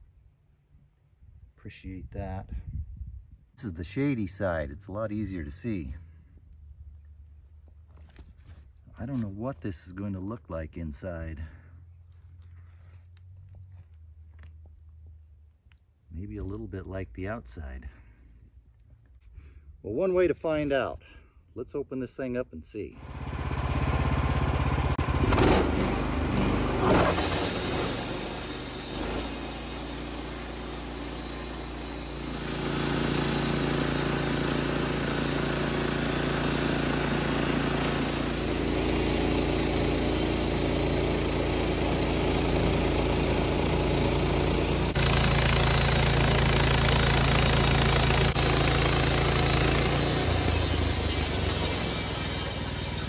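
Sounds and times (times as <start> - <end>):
band sawmill cutting log: 23.0 - 53.0.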